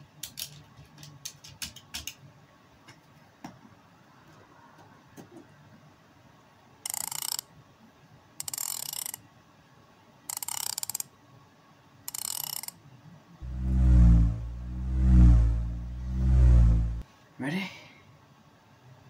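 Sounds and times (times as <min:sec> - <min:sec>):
knob ratcheting clicks: 0:06.9 - 0:07.4, 0:08.4 - 0:09.2, 0:10.3 - 0:11.1, 0:12.1 - 0:12.7.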